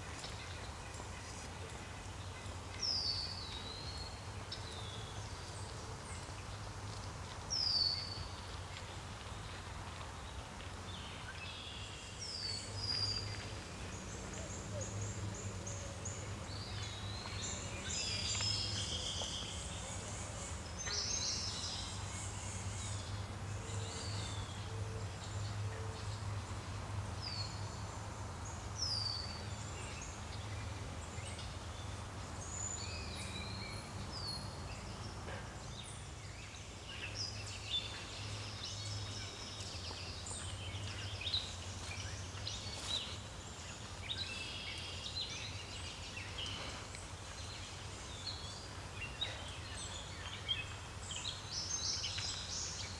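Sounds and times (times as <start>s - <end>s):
birds chirping: 10.2s - 25.6s.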